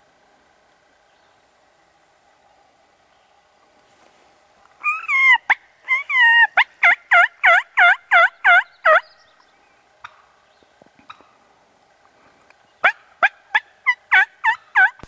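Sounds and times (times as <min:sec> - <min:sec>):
turkey yelps: 0:04.8 - 0:09.0, 0:12.8 - 0:15.0.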